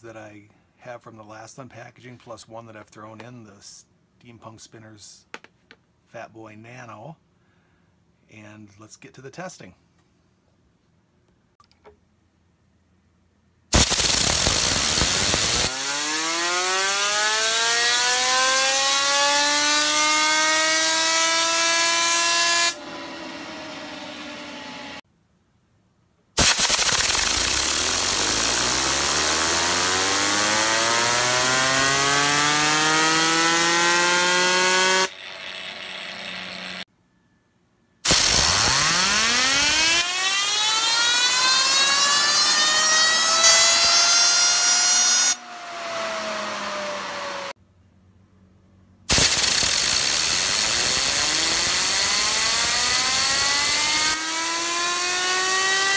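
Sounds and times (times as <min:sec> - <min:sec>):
fidget spinner whirring: 0:26.4 - 0:36.8, 0:49.2 - 0:55.7.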